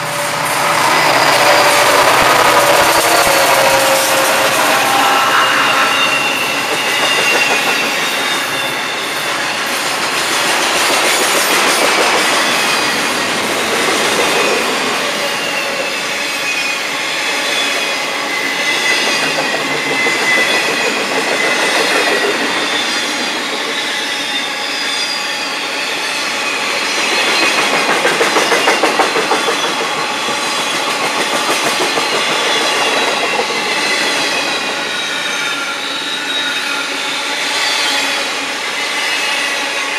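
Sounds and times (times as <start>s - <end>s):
high-pitched wheel squeal: 0.0s - 9.9s, 11.4s - 39.9s
freight train rumbling past: 0.0s - 39.9s.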